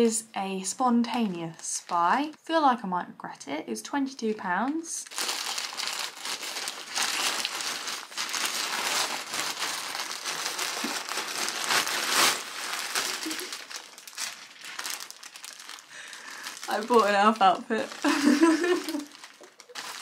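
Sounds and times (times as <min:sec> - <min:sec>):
plastic packaging crinkling: 0:05.0 - 0:20.0.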